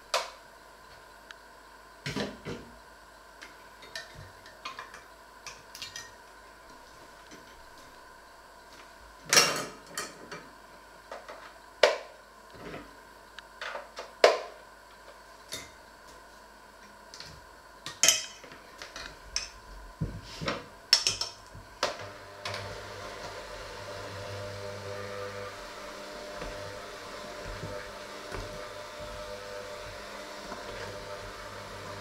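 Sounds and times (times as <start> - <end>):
hand mixer motor hum: 21.8 - 32.0.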